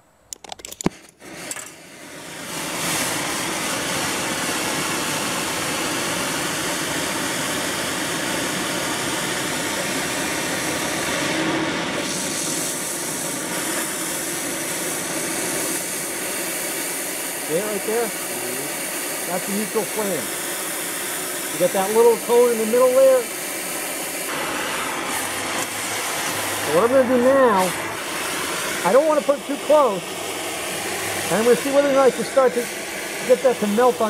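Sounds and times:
welding torch flame hissing: 0.7 - 34.0.

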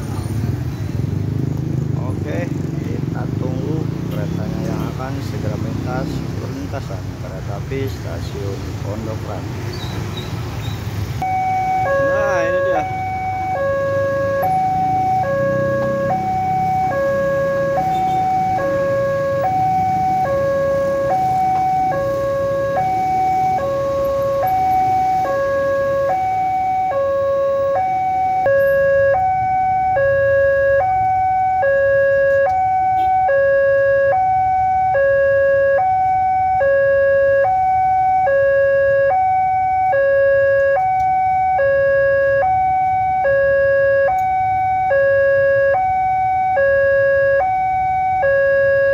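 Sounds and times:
level crossing alarm two-tone: 11.2 - 48.9.

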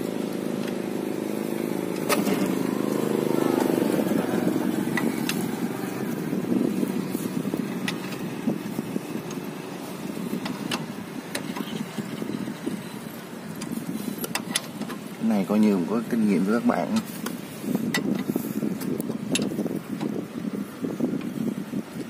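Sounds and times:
low vehicle rumble: 0.0 - 22.0.

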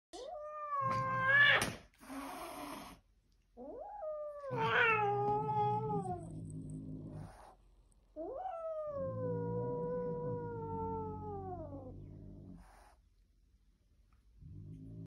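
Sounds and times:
cat yowling: 3.6 - 6.2.

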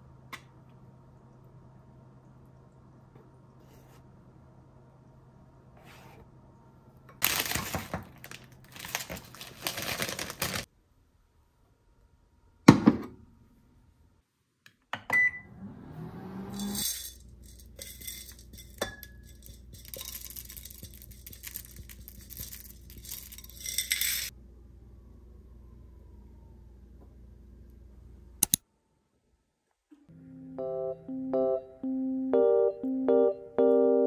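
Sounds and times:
packaging rustling: 7.2 - 10.7, 19.8 - 24.3.

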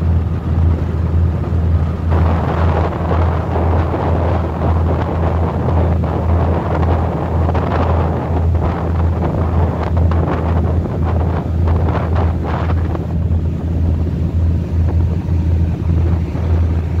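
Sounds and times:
ship engine droning: 0.0 - 17.0
wake water rushing: 0.0 - 17.0
wind buffeting microphone: 0.0 - 17.0.

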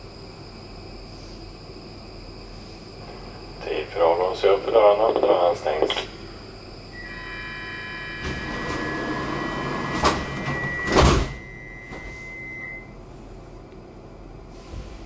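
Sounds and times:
high electrical tone: 3.4 - 13.0
train doors closing thuds: 8.0 - 12.7.

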